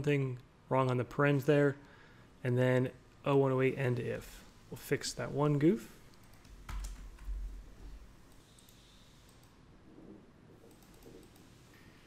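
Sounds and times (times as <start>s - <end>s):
mouse and keyboard clicks: 10.6s - 11.6s.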